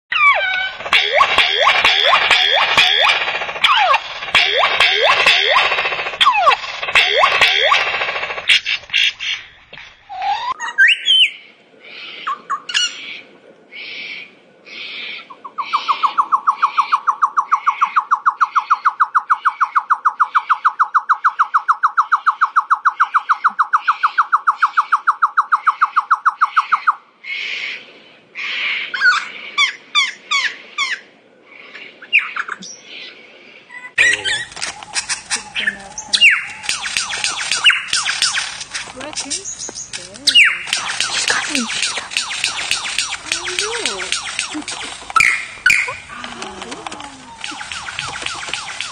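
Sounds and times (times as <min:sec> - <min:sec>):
fast rattle of repeated pulses: 0:00.5 - 0:09.9, 0:34.4 - 0:48.9
lyrebird whistles and chirps: 0:10.1 - 0:11.4, 0:33.8 - 0:38.6, 0:39.4 - 0:46.1.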